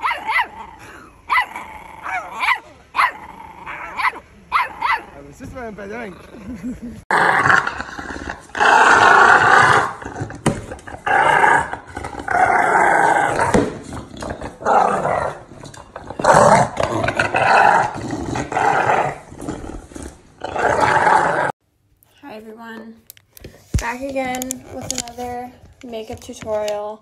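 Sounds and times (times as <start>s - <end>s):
dog growling: 6.0s - 21.6s.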